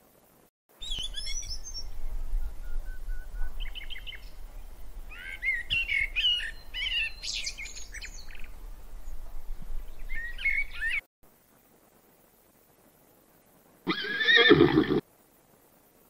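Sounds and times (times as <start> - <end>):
starling singing: 0.8 - 11.0.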